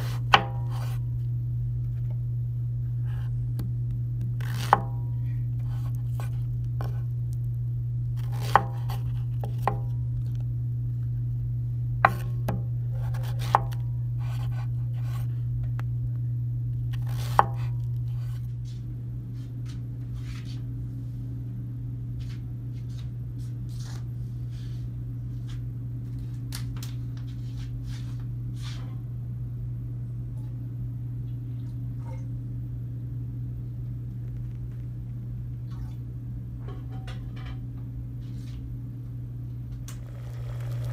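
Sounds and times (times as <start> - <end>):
steady low hum: 0.0 - 40.9
knife chopping on wooden board: 4.4 - 4.9, 8.2 - 9.9, 12.1 - 15.2, 17.0 - 18.3.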